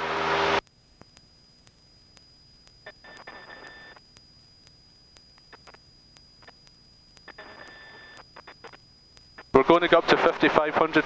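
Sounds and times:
faint clicks: 0:00.6 - 0:09.6
radio noise bursts with tone: 0:02.3 - 0:11.0.

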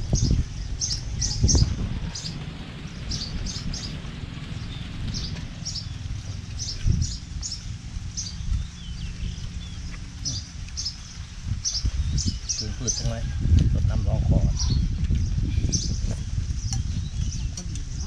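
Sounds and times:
small birds chirping: 0:00.0 - 0:18.0
steady low rumble: 0:00.0 - 0:18.0.

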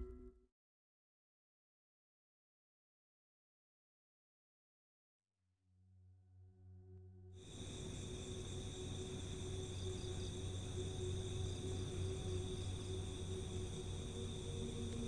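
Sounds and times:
low humming drone: 0:06.2 - 0:15.0
crickets and insects trilling: 0:07.4 - 0:15.0.

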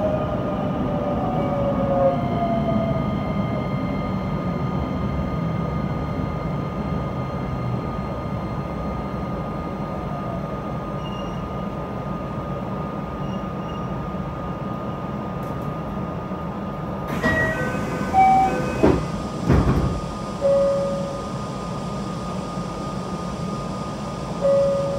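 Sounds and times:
train equipment humming and whining: 0:00.0 - 0:24.9
train doors knocking: 0:17.1 - 0:20.1
door chime tones: 0:17.2 - 0:18.9.

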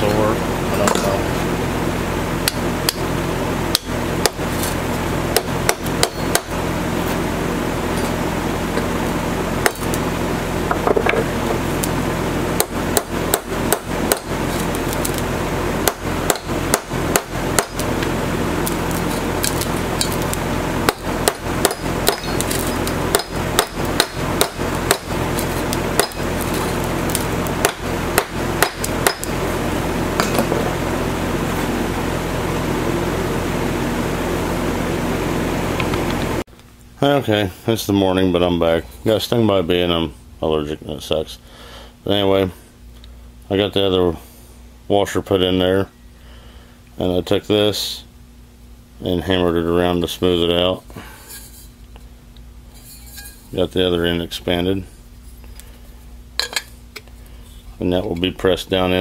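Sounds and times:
low hum: 0:00.0 - 0:41.0
hammer striking metal: 0:05.3 - 0:06.6, 0:12.6 - 0:15.2, 0:15.8 - 0:17.8, 0:20.8 - 0:29.4.

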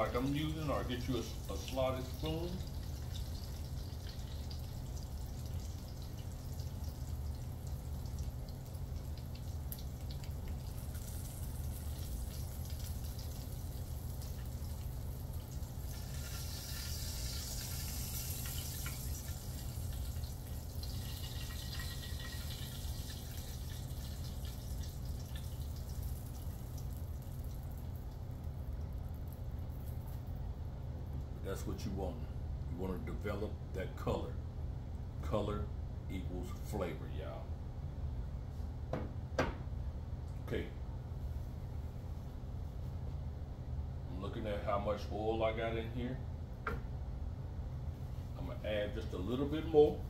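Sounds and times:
sausage sizzling in a pan: 0:10.7 - 0:26.3.

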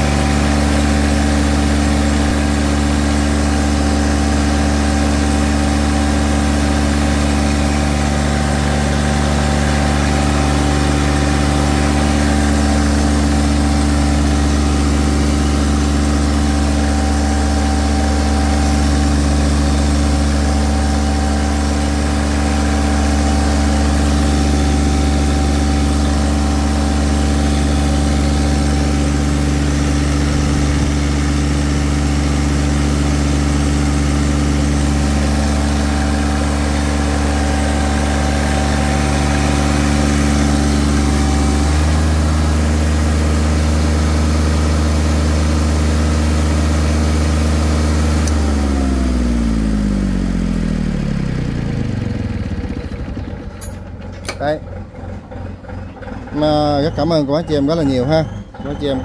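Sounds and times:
diesel generator running: 0:00.0 - 0:59.0
engine running down: 0:00.0 - 0:59.0.

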